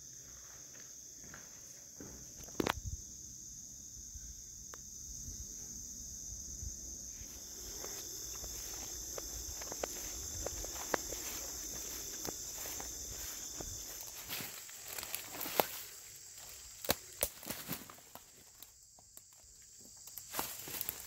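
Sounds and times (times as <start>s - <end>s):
insects chirping: 0.0s - 21.0s
light footstep clicks: 7.7s - 15.8s.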